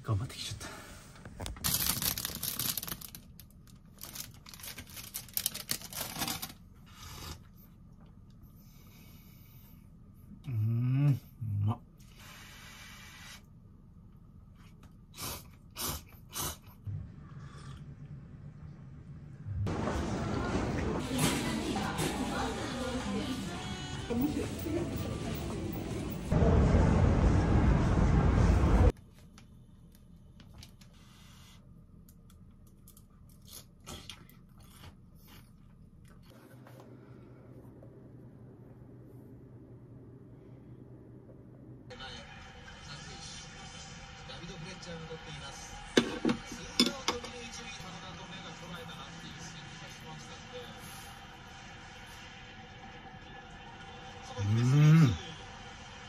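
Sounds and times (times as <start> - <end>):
train station platform noise: 19.7 - 28.9.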